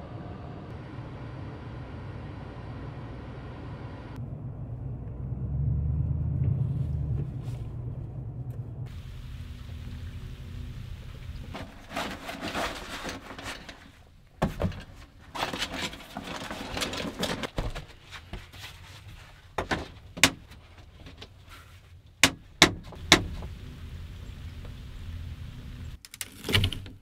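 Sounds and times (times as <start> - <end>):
rustling and handling: 11.3 - 23.0.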